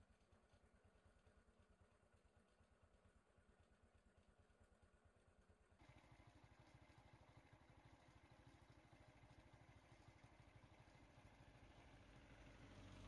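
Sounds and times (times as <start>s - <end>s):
faint vehicle engine idling: 0.0s - 13.0s
vehicle approaching: 5.8s - 13.0s.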